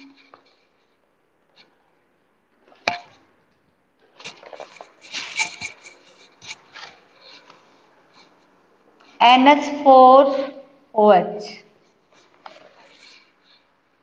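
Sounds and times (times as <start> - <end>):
handling scraping and rustling: 4.0 - 9.2, 11.8 - 13.7.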